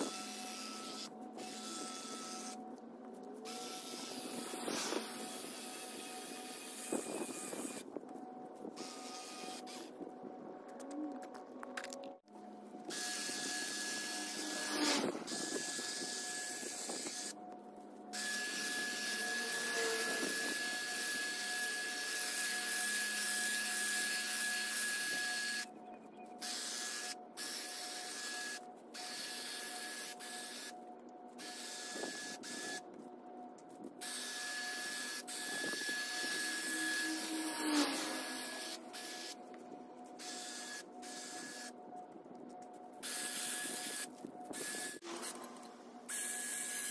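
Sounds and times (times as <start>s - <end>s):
hedge trimmer motor whine: 12.9s - 17.3s, 18.2s - 25.7s, 34.5s - 39.4s.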